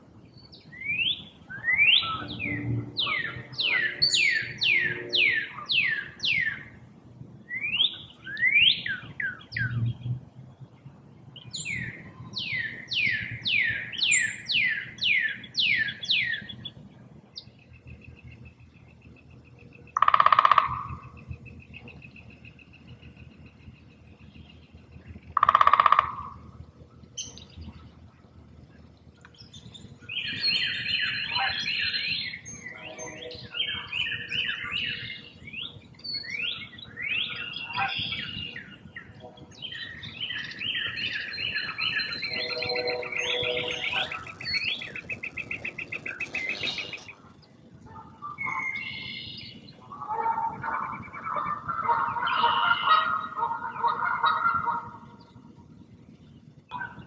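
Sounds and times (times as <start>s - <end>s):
chorus of bird chirps and trills: 0.2s - 57.0s
goose honk: 31.2s - 31.8s, 41.8s - 47.2s, 50.0s - 55.0s.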